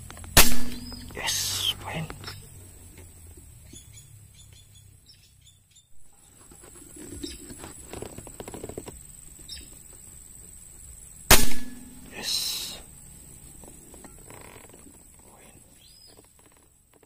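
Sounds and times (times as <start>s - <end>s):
air rifle shot: 0.4s - 1.7s, 11.3s - 12.8s
faint handling noise: 6.0s - 10.9s, 12.9s - 17.0s.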